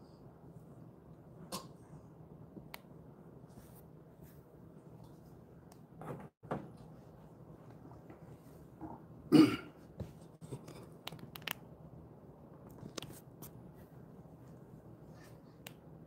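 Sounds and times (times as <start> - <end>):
person coughing: 9.3 - 9.8.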